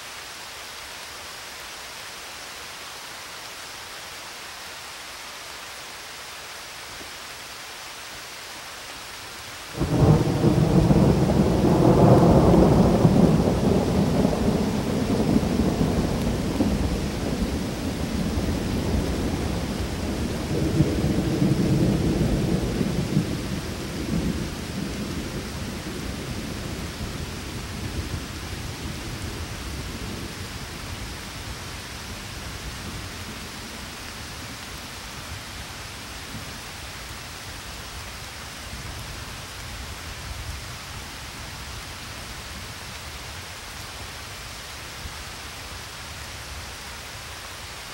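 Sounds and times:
steady rain: 0.0 - 47.9
rolling thunder: 9.8 - 28.4.

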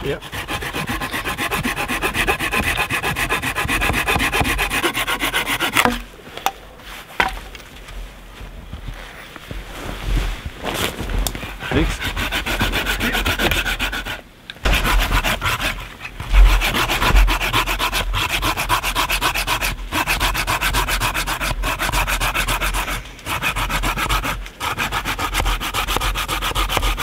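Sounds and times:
hand saw cutting wood: 0.0 - 6.0, 11.5 - 27.0.

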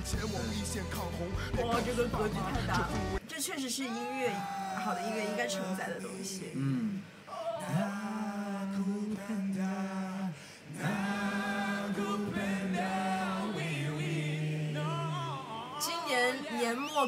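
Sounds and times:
choir singing a cappella: 7.3 - 17.0.

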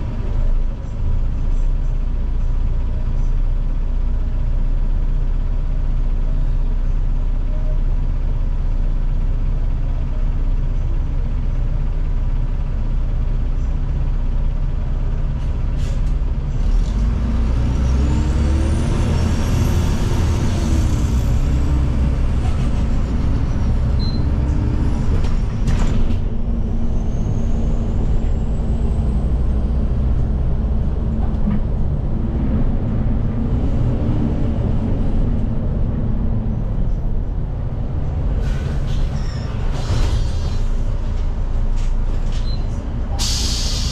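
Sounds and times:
bus drivetrain rumble and whine: 0.0 - 43.9
short air hisses: 43.2 - 43.9.

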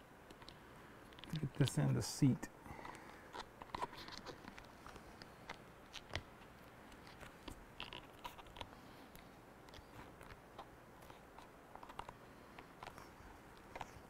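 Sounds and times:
rubber weatherstrip clicks and crackles: 2.8 - 14.0.

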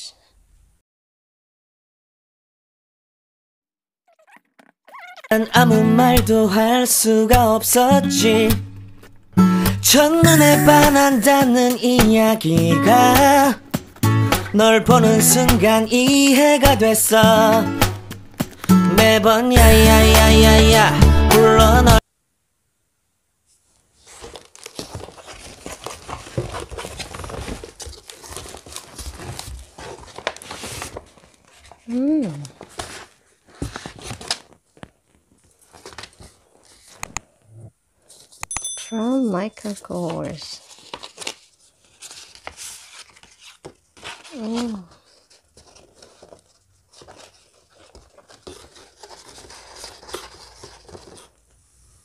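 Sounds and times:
packaging crinkling and rustling: 23.6 - 37.4, 39.6 - 51.6.

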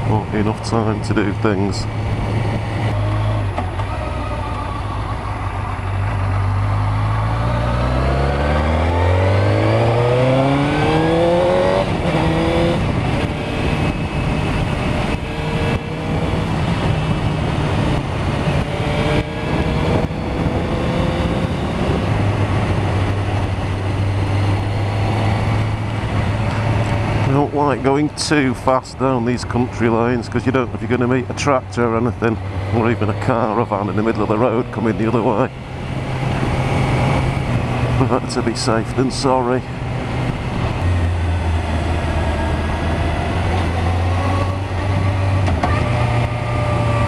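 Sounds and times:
wind rush on microphone: 0.0 - 3.8, 5.3 - 27.8, 34.6 - 38.3, 39.4 - 47.0
motorcycle engine accelerating: 0.0 - 28.6, 29.2 - 47.0.

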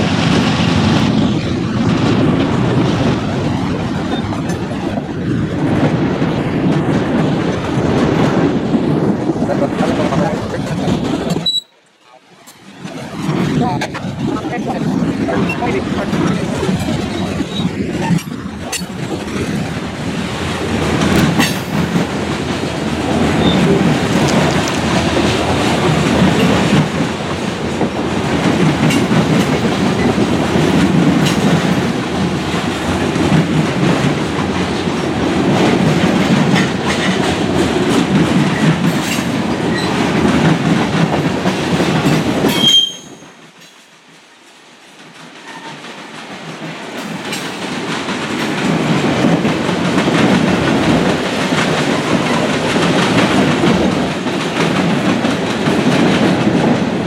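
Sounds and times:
freight train rumble: 0.0 - 57.0
wheels clacking over rail joints: 0.0 - 57.0
high wheel squeal: 11.4 - 11.8, 42.5 - 43.3.

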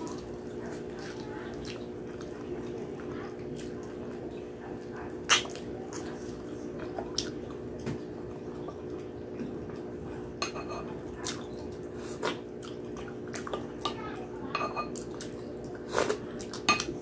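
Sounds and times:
chewing mouth noises: 0.0 - 10.0, 11.1 - 13.8
spoon clinking glass bowl: 10.4 - 10.9, 14.5 - 15.0.

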